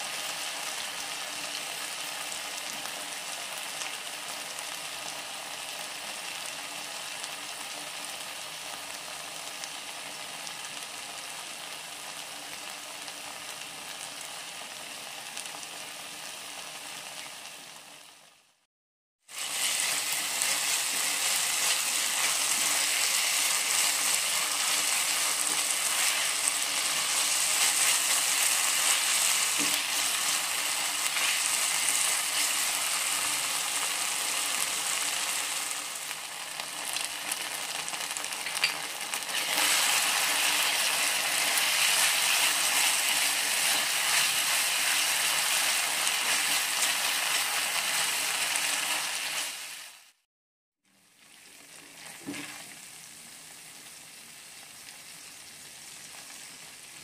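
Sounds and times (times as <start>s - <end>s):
filling sizzling in a frying pan: 0.0s - 18.6s, 19.2s - 50.2s, 50.9s - 57.0s
spatula stirring: 19.5s - 32.7s, 38.4s - 47.5s.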